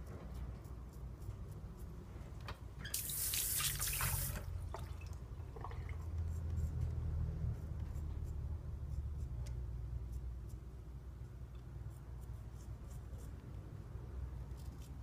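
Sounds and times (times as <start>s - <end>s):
water running from a tap: 2.9s - 5.1s.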